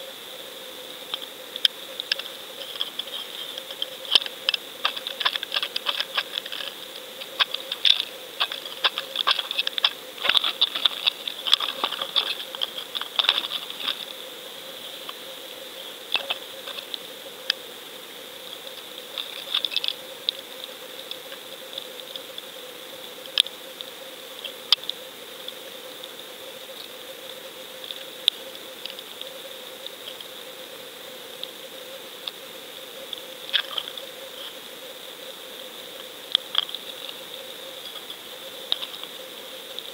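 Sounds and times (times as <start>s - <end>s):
faint underwater whine: 0.0s - 39.9s
sharp underwater clicks: 1.1s - 14.2s.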